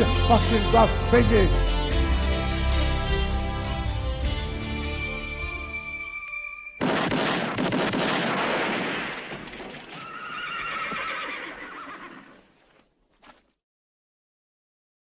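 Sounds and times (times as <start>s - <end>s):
horse neighing: 9.9s - 12.4s.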